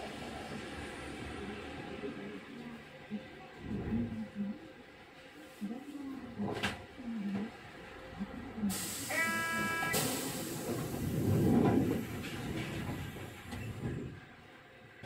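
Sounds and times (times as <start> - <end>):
short buzzer tone: 9.1 - 10.0.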